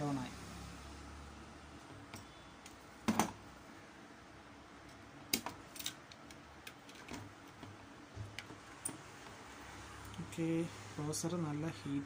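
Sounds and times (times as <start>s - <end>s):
sharp clicks and taps from handling parts: 4.8s - 9.0s.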